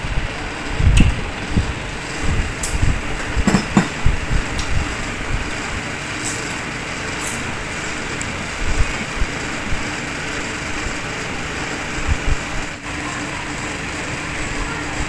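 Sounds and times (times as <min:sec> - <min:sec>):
steady rushing hiss: 0:00.0 - 0:15.0.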